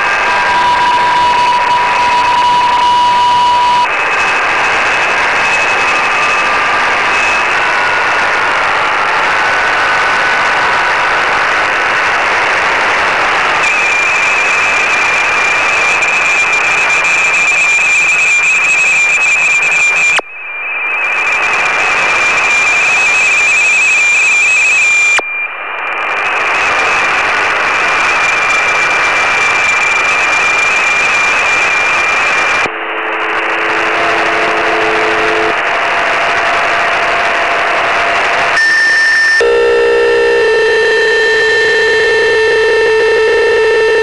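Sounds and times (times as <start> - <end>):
two steady data tones: 0.0 - 6.5, 13.6 - 25.6, 38.6 - 44.0
low steady data tones: 0.0 - 11.6, 12.3 - 44.0
radio band hiss: 0.0 - 44.0.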